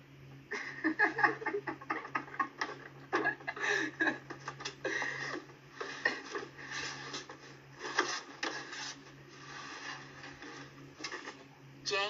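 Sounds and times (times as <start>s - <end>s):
steady low hum: 0.0s - 12.0s
children giggling: 0.5s - 5.4s.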